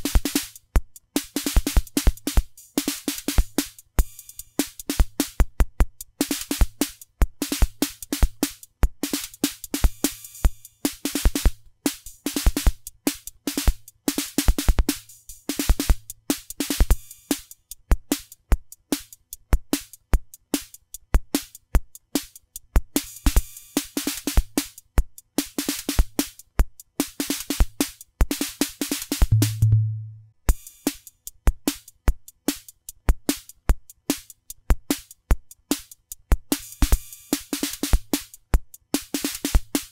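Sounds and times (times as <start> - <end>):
drum machine beat: 0.0 - 10.1, 29.2 - 30.4
short low tone: 29.3 - 30.3.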